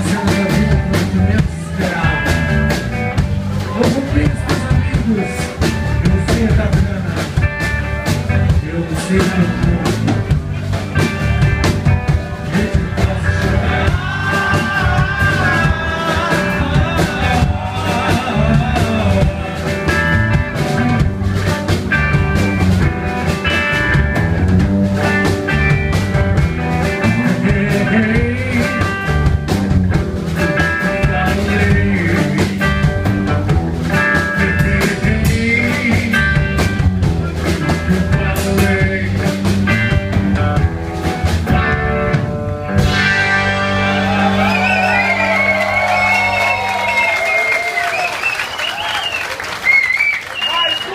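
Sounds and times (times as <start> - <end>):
electric guitar: 0.0 - 50.1
bass guitar: 0.0 - 50.9
drum kit: 0.0 - 50.9.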